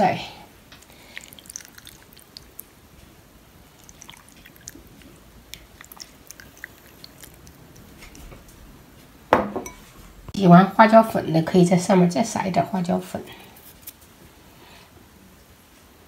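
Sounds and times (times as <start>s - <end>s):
sauce pouring small ticks: 0.8s - 2.7s, 3.6s - 8.6s.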